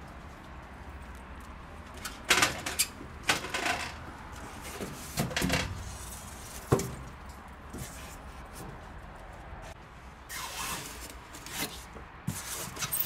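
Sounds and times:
foam box scraping and squeaking: 10.3s - 13.0s.

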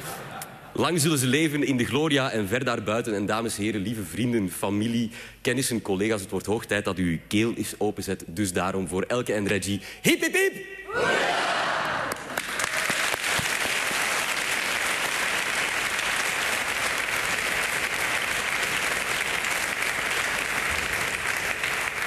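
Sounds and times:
crowd applauding: 11.8s - 22.0s.

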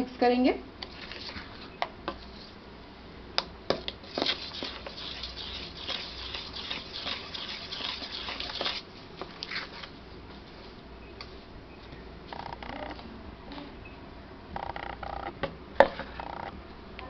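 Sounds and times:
spoon swishing and scraping batter: 0.8s - 2.6s, 4.0s - 10.7s.

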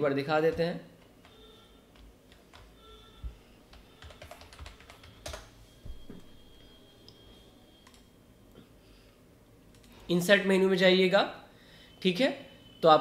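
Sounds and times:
typing on computer keyboard: 0.5s - 2.8s, 3.7s - 5.5s.

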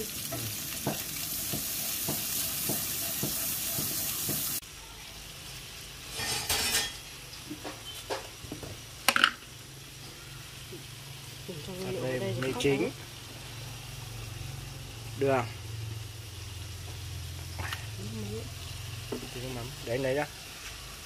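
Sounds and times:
utensils and cookware clinking: 0.0s - 4.6s, 6.1s - 8.3s
butter sizzling in a pan: 0.0s - 21.0s.

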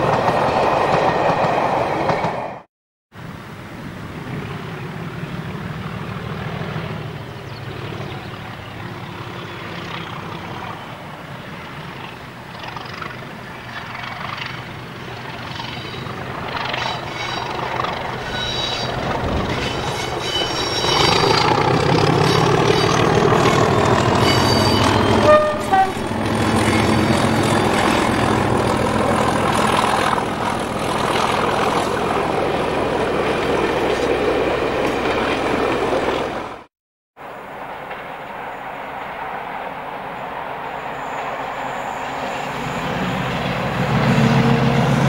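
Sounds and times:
diesel locomotive engine: 0.0s - 45.0s
distant locomotive rumble: 3.2s - 45.0s
train horn toot: 18.2s - 21.3s, 24.2s - 26.0s.

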